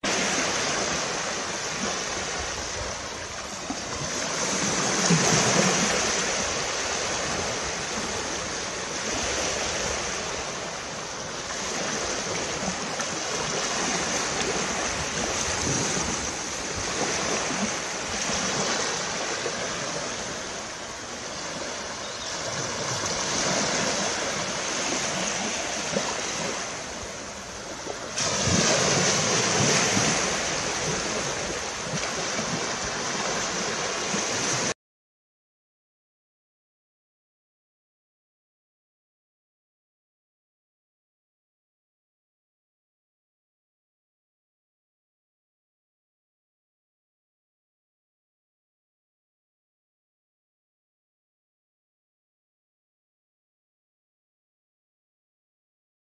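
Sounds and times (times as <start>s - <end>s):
small waves washing up shore: 0.0s - 34.8s.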